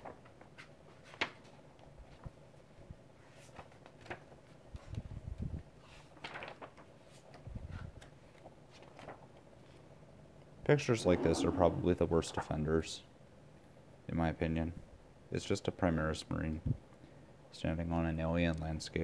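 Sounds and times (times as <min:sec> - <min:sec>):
book pages rustling: 0:03.2 - 0:04.9, 0:05.8 - 0:09.8.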